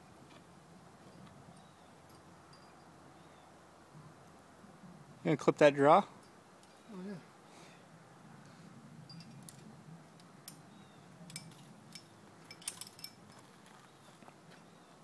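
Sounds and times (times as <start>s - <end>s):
carabiners clinking: 9.1s - 9.6s, 11.3s - 13.6s.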